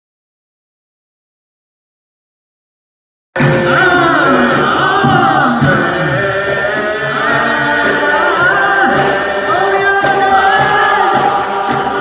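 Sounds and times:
men singing in chorus: 0:03.4 - 0:12.0.

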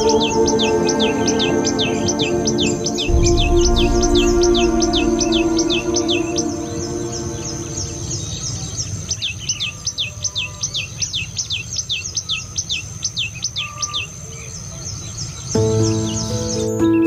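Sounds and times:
high insect whine: 0:00.0 - 0:08.8
bird singing sharp notes: 0:02.9 - 0:08.9.

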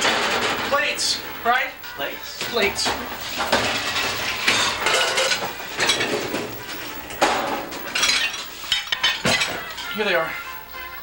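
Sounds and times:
ceramic plates clattering: 0:02.8 - 0:10.2.

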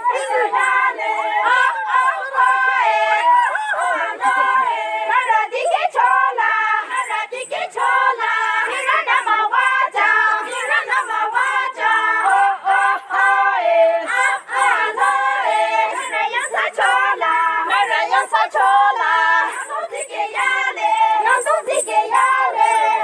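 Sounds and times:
women singing in chorus: 0:00.0 - 0:23.0.

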